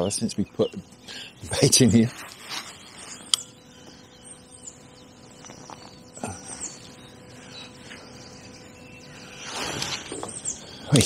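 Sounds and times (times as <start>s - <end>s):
faint high bird chirps: 0.0s - 11.0s
fishing rod rustling: 2.0s - 3.4s.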